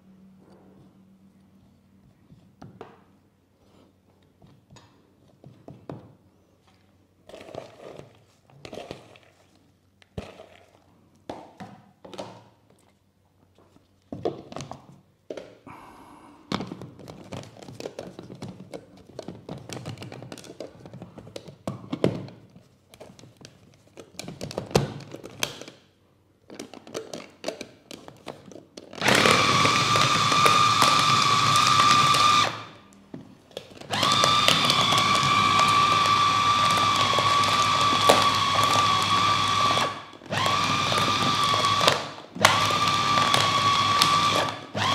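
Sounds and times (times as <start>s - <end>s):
food chopper motor whining: 29.0s - 32.8s, 33.8s - 44.9s.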